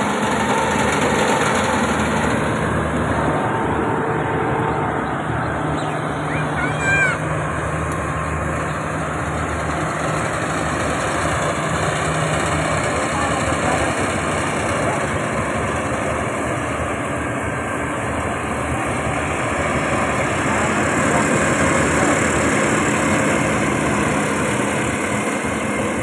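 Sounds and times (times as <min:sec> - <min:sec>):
combine harvester running: 0:00.0 - 0:26.0
low hum: 0:01.7 - 0:13.3.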